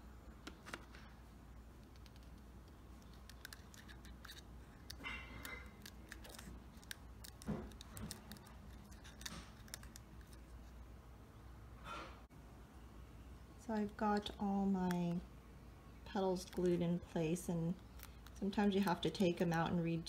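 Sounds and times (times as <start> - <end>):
plastic clicks and crackles: 1.8 - 10.6.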